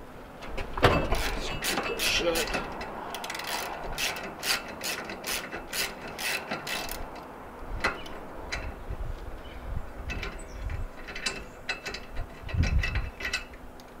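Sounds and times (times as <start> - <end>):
socket ratchet clicking: 1.2 - 7.3.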